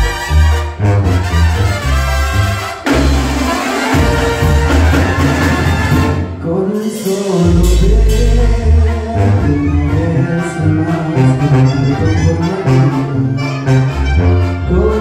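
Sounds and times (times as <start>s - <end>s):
sousaphone bass line: 0.0s - 6.0s, 7.4s - 15.0s
trumpets and trombones: 0.0s - 15.0s
drums: 2.7s - 8.6s.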